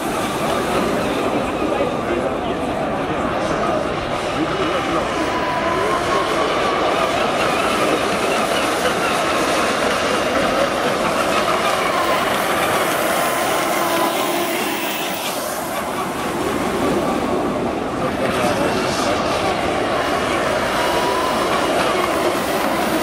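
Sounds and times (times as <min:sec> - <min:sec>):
turbine engine whine: 0:00.0 - 0:23.0
water rushing hiss: 0:06.1 - 0:23.0.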